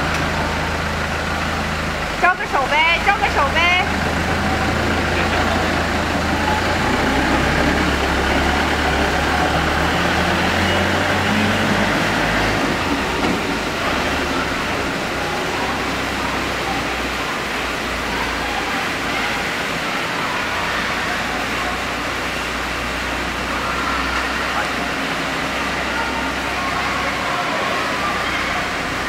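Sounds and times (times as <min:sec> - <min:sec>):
train engine humming: 0:00.0 - 0:29.0.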